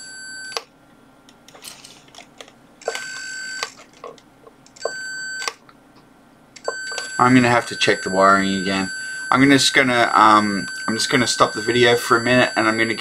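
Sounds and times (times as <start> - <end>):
electronic alarm beeps: 2.9 - 3.7, 4.8 - 5.6, 6.6 - 13.0.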